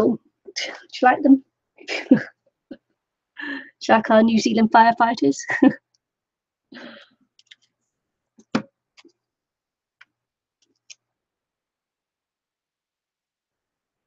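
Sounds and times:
hands tapping a paper card: 0:08.4 - 0:09.1.

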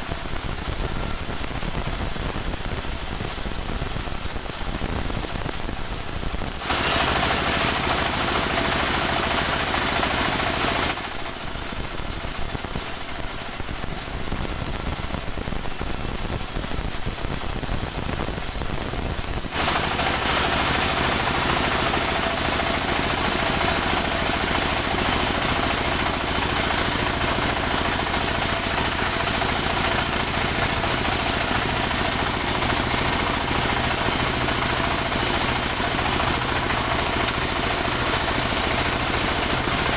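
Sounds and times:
band saw cutting wood: 0:06.5 - 0:11.6, 0:19.5 - 0:39.9.

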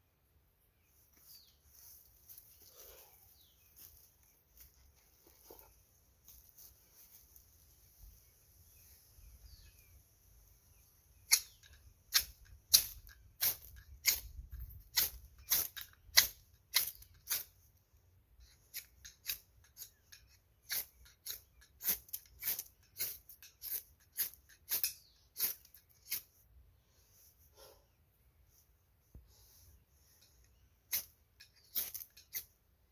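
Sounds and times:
ferro rod scraped with striker: 0:18.4 - 0:26.4.

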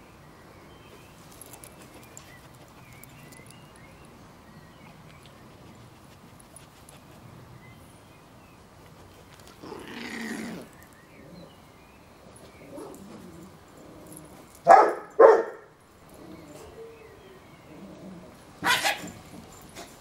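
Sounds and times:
dog barking: 0:14.6 - 0:15.7, 0:18.6 - 0:19.2.

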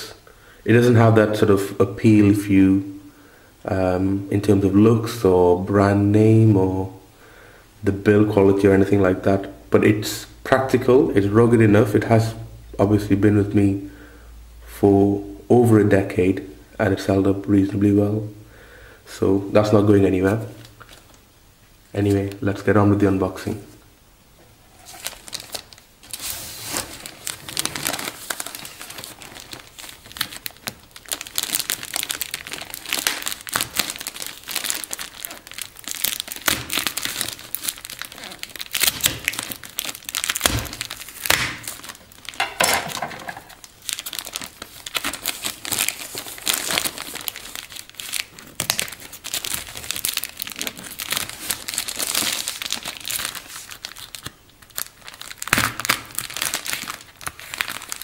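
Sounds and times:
plastic and foil packaging crinkling: 0:20.5 - 0:21.2, 0:24.7 - 0:58.0.

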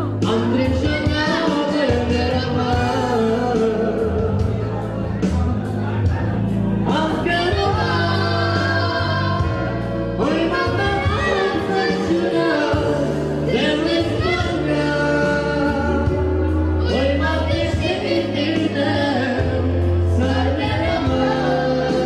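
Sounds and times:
boy singing into a microphone: 0:00.0 - 0:05.3, 0:06.8 - 0:22.0
keyboard bass notes: 0:00.0 - 0:22.0.

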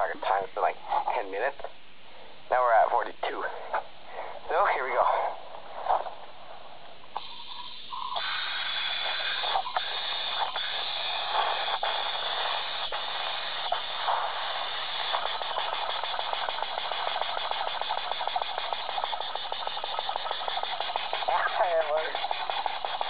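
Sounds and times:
steam engine hissing and clattering: 0:07.1 - 0:23.0.

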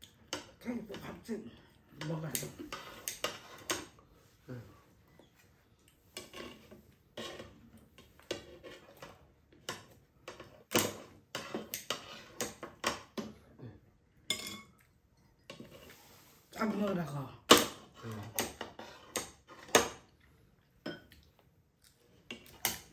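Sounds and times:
tongs and scissors clinking on plate: 0:14.3 - 0:14.8.

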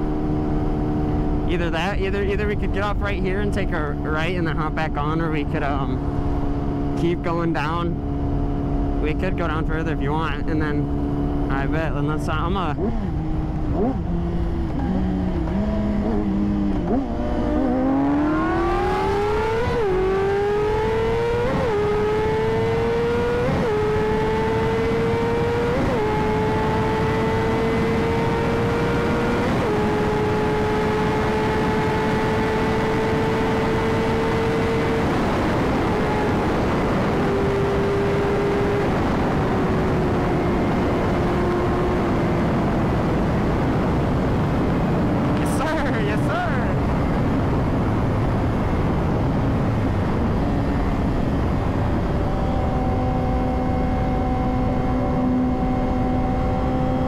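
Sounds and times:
motorcycle engine accelerating: 0:00.0 - 0:57.0
wind rush: 0:33.8 - 0:57.0.

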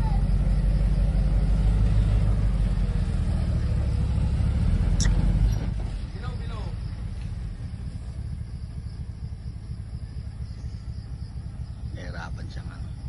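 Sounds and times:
diesel truck engine rumbling: 0:00.0 - 0:13.0
short sharp click: 0:05.0 - 0:05.2.

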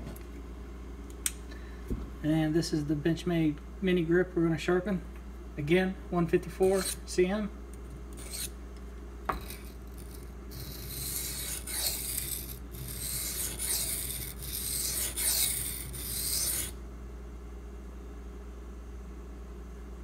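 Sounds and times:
knife scraping on whetstone: 0:06.6 - 0:07.0, 0:08.2 - 0:08.5, 0:09.3 - 0:16.8.

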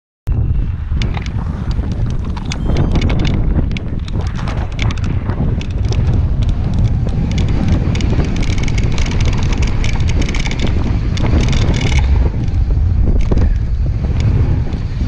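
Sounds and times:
wind buffeting microphone: 0:00.3 - 0:15.0
bike rattling on gravel trail: 0:00.9 - 0:15.0.

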